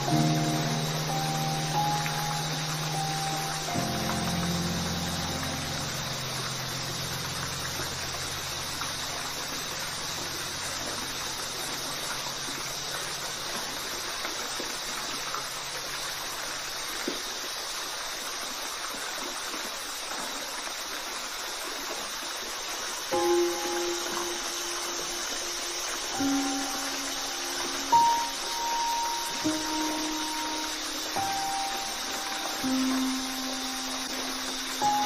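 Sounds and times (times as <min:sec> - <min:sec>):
low background music: 0:00.0 - 0:13.8, 0:23.2 - 0:35.0
waterfall rushing: 0:00.0 - 0:35.0.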